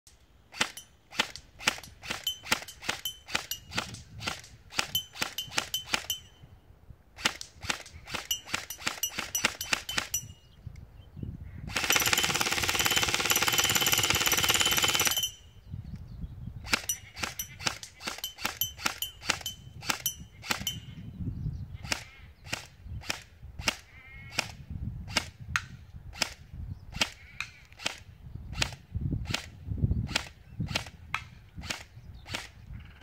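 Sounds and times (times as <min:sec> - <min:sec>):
airsoft rifle full-automatic burst: 0:11.7 - 0:15.3.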